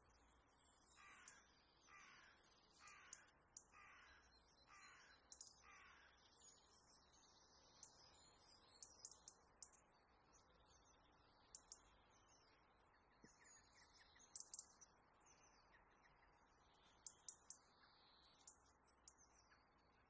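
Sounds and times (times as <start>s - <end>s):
faint bird calls: 0.9s - 6.5s.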